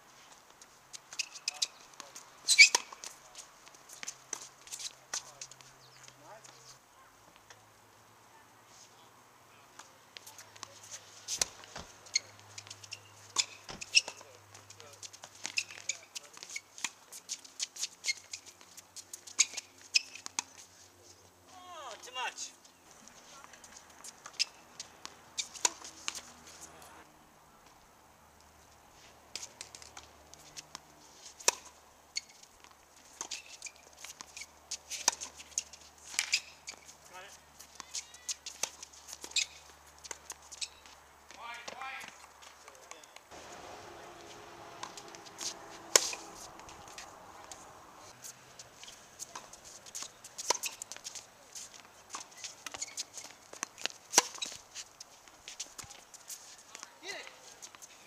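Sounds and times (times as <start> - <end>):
tennis shoes squeaking and scuffing: 0.0 - 7.6, 9.8 - 27.0, 28.4 - 58.0
tennis balls struck by racquets: 23.4 - 27.0, 29.3 - 36.9, 42.9 - 48.1
tennis ball off racket strings: 24.2 - 27.0, 43.3 - 48.1.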